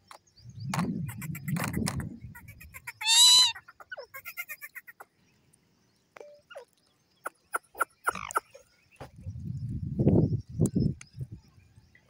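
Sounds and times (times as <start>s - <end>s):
parakeet soft chirps and clicks: 0.0s - 3.0s
parakeet shrill call: 2.4s - 4.8s.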